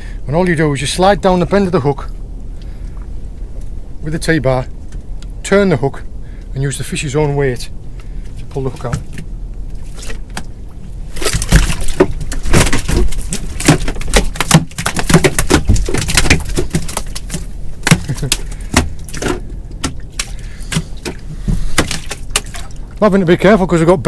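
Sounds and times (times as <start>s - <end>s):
eel thrashing on a boat deck: 8.4s - 23.0s.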